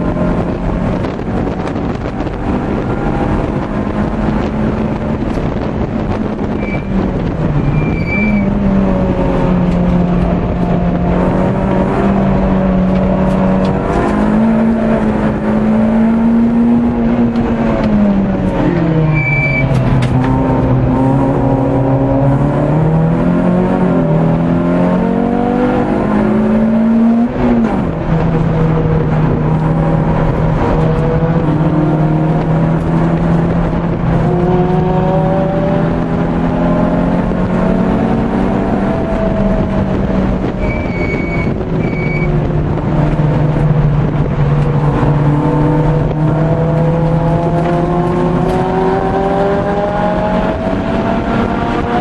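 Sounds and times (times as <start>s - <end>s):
car engine revving: 0.0s - 52.0s
short high beep: 19.1s - 19.7s, 40.6s - 42.4s.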